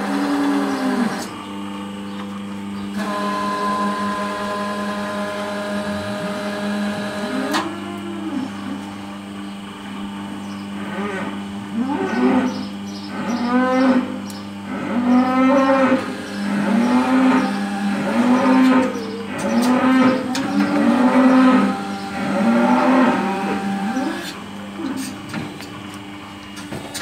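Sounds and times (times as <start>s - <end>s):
steady motor hum: 0.0s - 27.0s
cow mooing: 3.0s - 8.9s, 10.8s - 24.4s.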